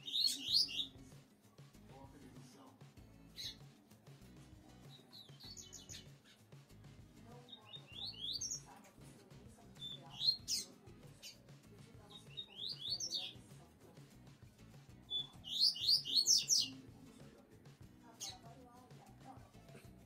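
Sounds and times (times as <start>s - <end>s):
songbird singing whistles: 0.0s - 1.0s, 3.3s - 3.7s, 4.7s - 6.4s, 7.4s - 8.7s, 9.7s - 11.4s, 12.1s - 13.4s, 15.1s - 16.8s.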